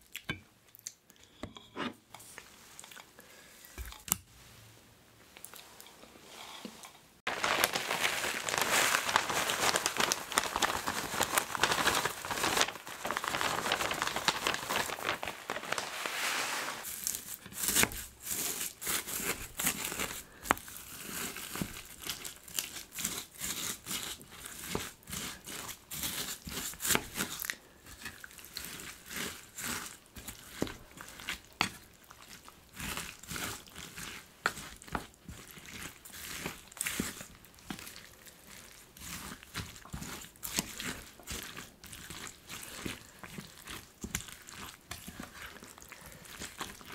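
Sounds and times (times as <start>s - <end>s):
wooden spoon mixing in metal pot: 1.3s - 3.1s, 5.6s - 46.9s
dry seaweed flakes crinkling: 7.3s - 17.5s.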